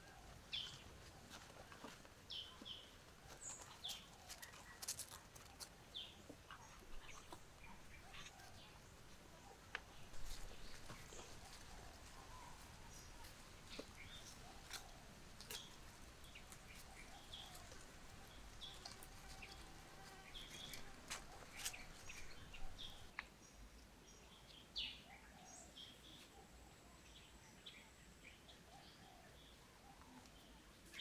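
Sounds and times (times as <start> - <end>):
faint bird chirps: 2.3 - 19.6.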